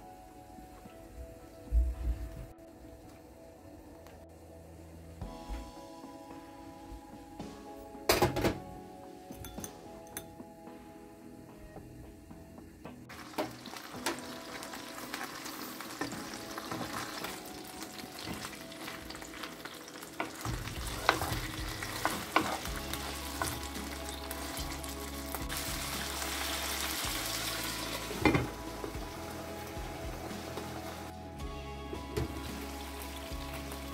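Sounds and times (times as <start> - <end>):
chicken frying in oil: 13.1 - 31.1.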